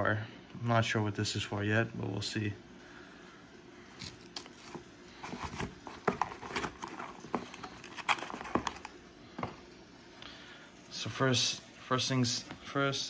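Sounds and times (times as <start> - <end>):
cardboard box taps and knocks: 5.5 - 7.6.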